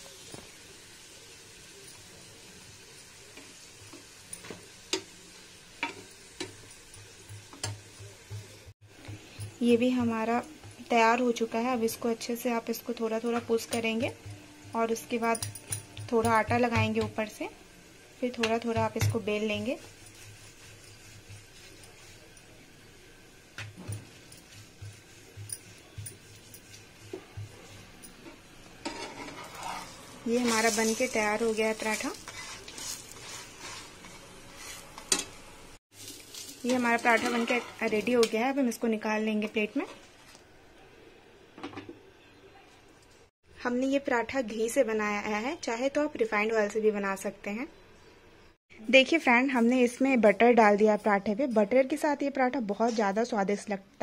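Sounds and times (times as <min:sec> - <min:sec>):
faint frying sizzle: 0:00.0 - 0:43.3
spatula scraping frying pan: 0:18.8 - 0:22.4, 0:23.6 - 0:35.4, 0:36.0 - 0:38.2.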